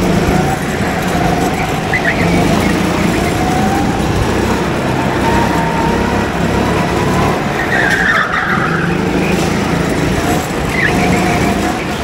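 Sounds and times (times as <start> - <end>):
go-kart engine running: 0.0 - 12.0
tyre squeal: 7.5 - 9.4, 10.6 - 12.0.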